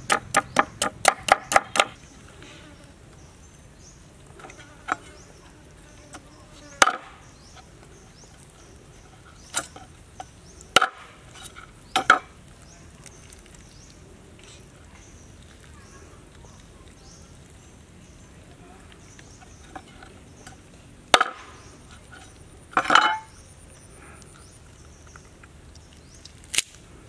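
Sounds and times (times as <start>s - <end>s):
cleaver chopping on wooden board: 0.0s - 2.0s, 6.8s - 7.1s
insects buzzing faintly: 0.0s - 27.0s.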